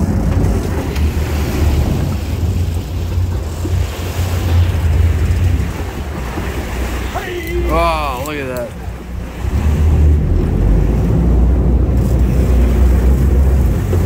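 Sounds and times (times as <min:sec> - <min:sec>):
boat engines rumbling: 0:00.0 - 0:14.0
water churning and splashing: 0:00.0 - 0:14.0
wind buffeting microphone: 0:00.0 - 0:14.0.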